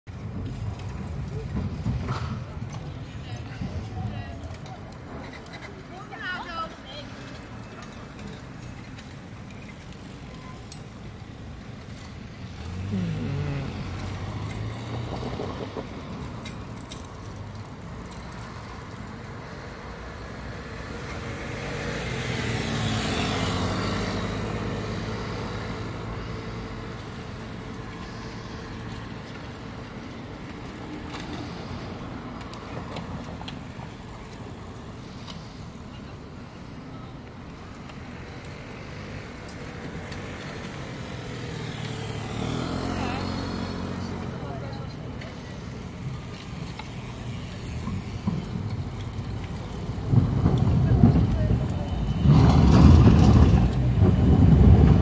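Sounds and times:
passing traffic: 0.0s - 55.0s
loud vehicle passing: 12.5s - 16.4s, 20.6s - 29.3s, 39.9s - 44.6s, 45.4s - 55.0s.

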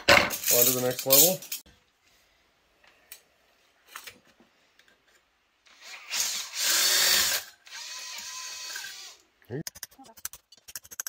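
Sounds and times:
cordless drill whining: 5.7s - 9.2s.

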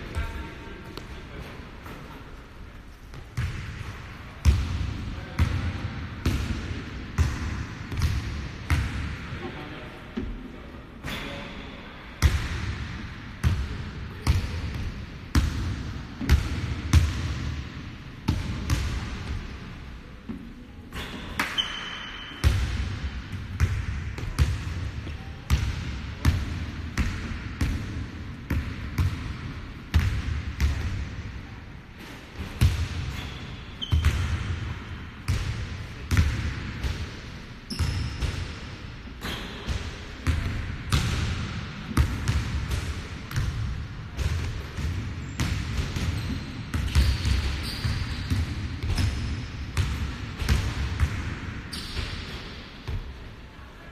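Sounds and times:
sneaker squeaks: 20.9s - 22.5s, 33.1s - 34.4s, 37.7s - 38.4s, 39.2s - 39.7s, 45.2s - 49.3s, 51.7s - 52.4s.

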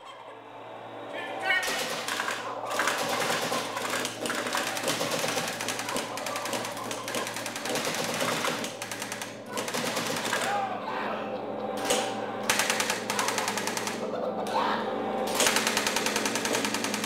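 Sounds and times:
simulated machine-gun fire: 1.6s - 10.6s, 11.8s - 14.1s, 15.3s - 17.0s.

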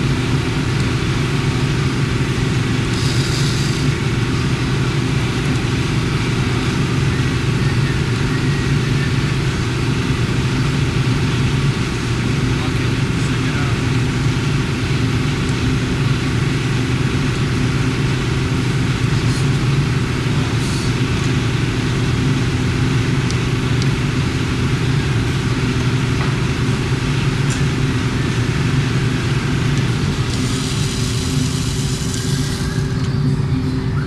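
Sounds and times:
low mechanical drone: 0.0s - 34.0s.

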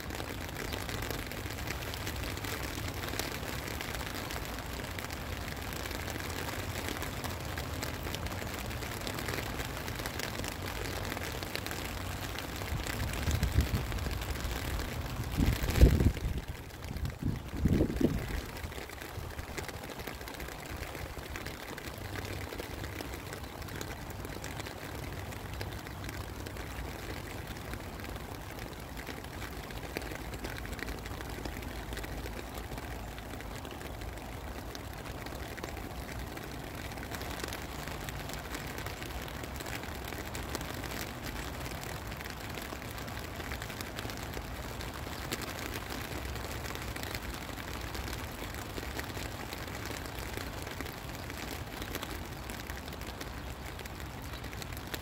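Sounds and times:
rain drops ticking: 0.0s - 55.0s.

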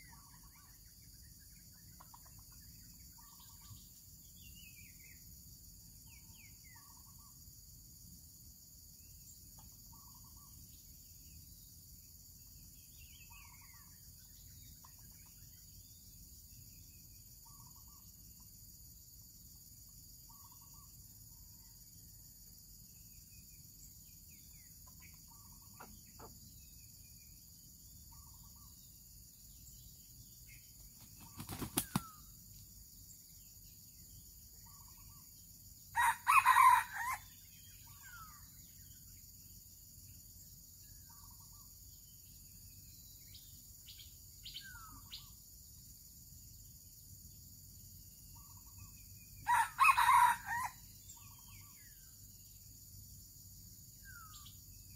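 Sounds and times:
small birds chirping: 0.0s - 7.8s, 9.0s - 36.1s, 36.7s - 45.8s, 48.2s - 54.9s
wings flapping: 31.0s - 32.1s
rooster crowing: 36.0s - 37.3s, 49.5s - 50.8s.

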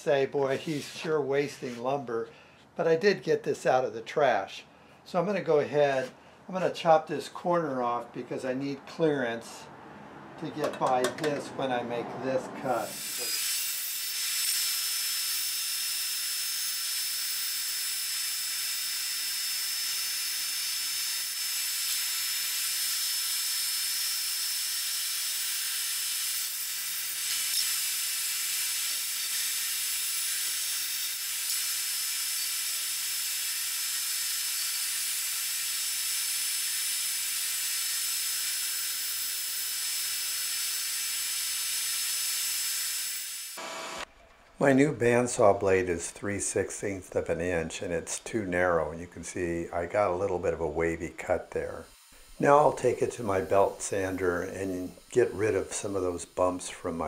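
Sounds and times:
bandsaw cutting board: 0.4s - 1.9s, 12.6s - 44.1s, 51.5s - 57.0s
shop vacuum running: 43.5s - 44.1s.

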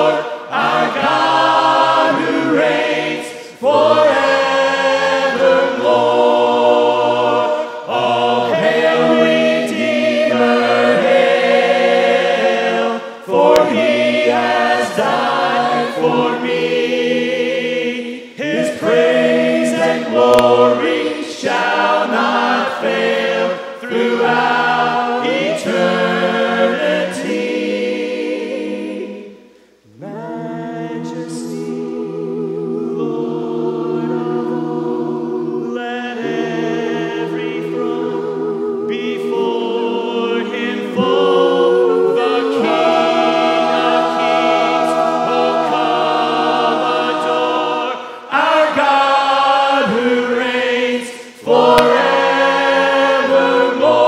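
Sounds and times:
a cappella choir singing a hymn: 0.0s - 54.0s.

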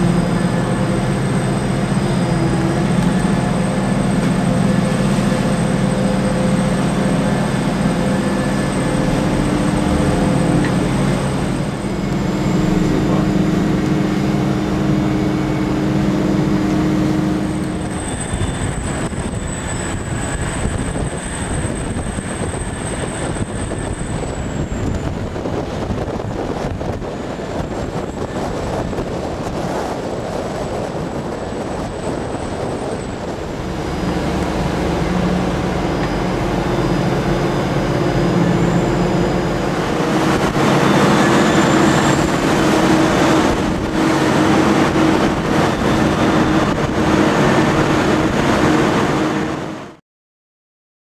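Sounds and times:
steady hum: 0.0s - 49.1s
excavator machinery drone: 0.0s - 50.0s.

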